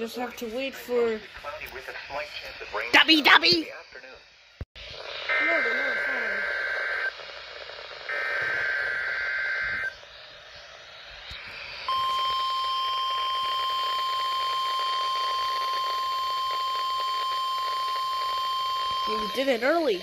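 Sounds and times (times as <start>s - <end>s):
harsh two-tone digital warble: 5.2s - 10.0s
steady alarm tone: 5.3s - 20.0s.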